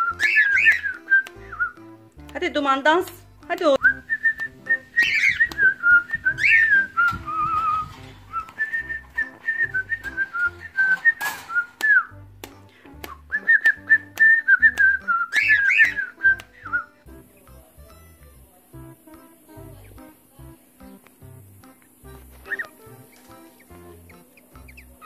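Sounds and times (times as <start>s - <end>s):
cockatiel whistling: 0.0s - 1.8s, 3.8s - 12.1s, 13.0s - 16.9s, 22.4s - 23.0s
sharp bird chirps: 15.4s - 16.1s.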